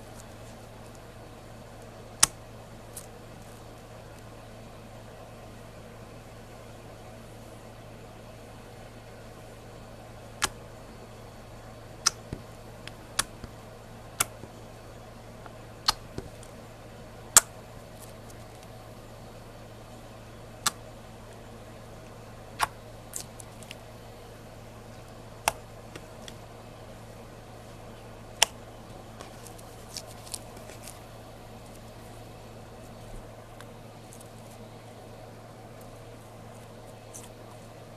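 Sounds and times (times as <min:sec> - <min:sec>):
steady background hum: 0:00.0 - 0:37.9.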